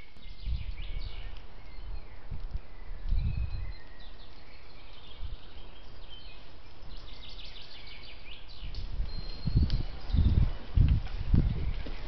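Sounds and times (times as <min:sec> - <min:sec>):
birds singing and chirping: 0:00.0 - 0:12.0.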